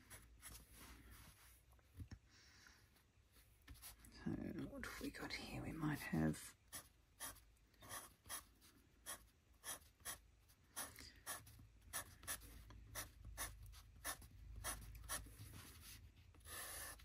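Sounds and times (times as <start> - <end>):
pencil strokes on paper: 5.9 - 17.0.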